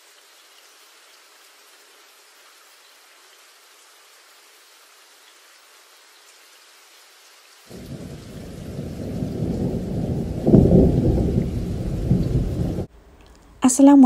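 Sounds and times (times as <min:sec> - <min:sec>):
rain hiss: 0:00.0 - 0:13.8
low thunder rumble: 0:07.7 - 0:12.9.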